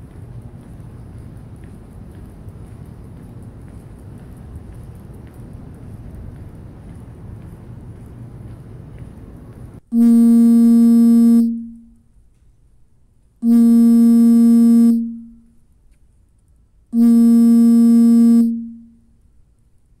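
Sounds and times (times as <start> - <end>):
synthesizer tone: 10.0 - 11.9, 13.4 - 15.4, 17.0 - 18.9.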